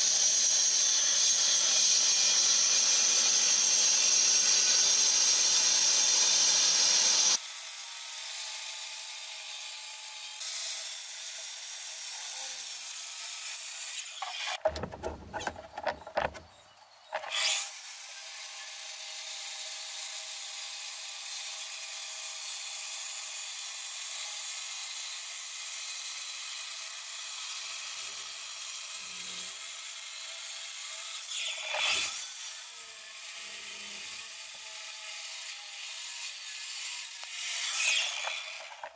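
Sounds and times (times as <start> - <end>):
concrete cutter grinding wall: 0.0 - 7.4, 10.0 - 38.9.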